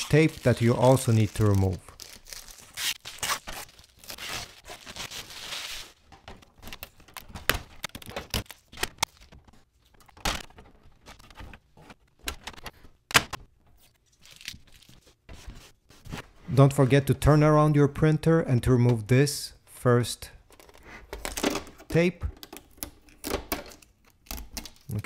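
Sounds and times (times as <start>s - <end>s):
plastic film rustling and tearing: 0.0s - 10.2s.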